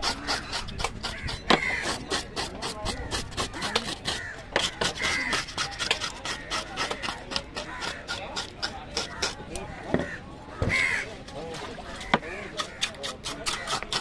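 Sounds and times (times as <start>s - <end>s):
scaler scraping fish scales: 0.0s - 9.6s, 12.2s - 14.0s.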